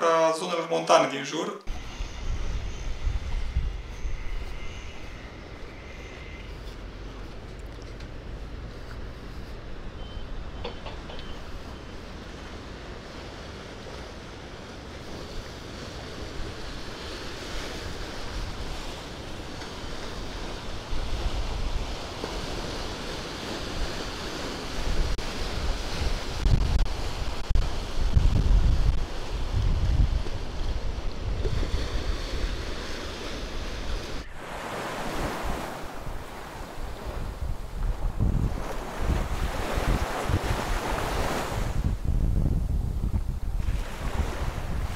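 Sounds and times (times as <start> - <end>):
sea waves washing on shore: 1.7 - 44.9
wind buffeting microphone: 1.7 - 44.9.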